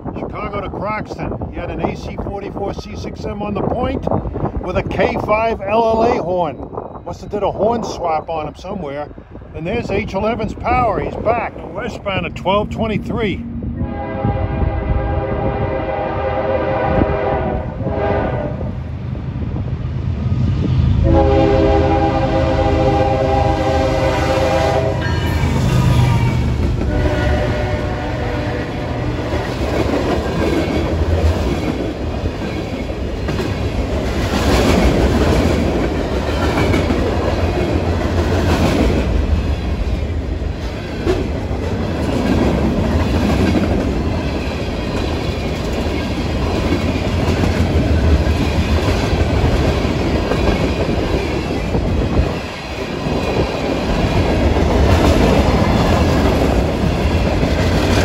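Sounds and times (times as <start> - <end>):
low rumble of freight train: 0.0 - 58.0
train wheels clicking over rail joints: 29.2 - 58.0.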